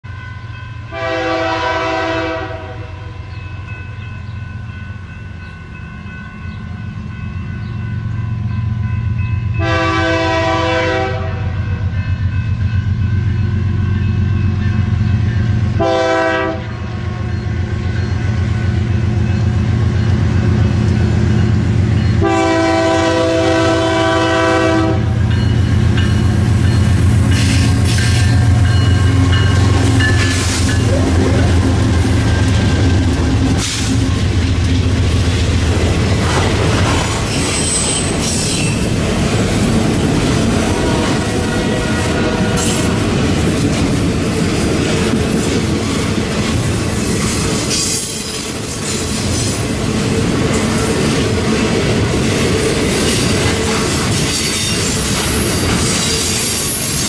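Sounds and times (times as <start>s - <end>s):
locomotive air horn: 0.9s - 3.1s, 9.6s - 11.6s, 15.8s - 16.9s, 22.2s - 25.2s, 40.7s - 43.0s
locomotive engine rumble: 17.5s - 38.2s
train wheels clattering over rails: 25.2s - 57.0s.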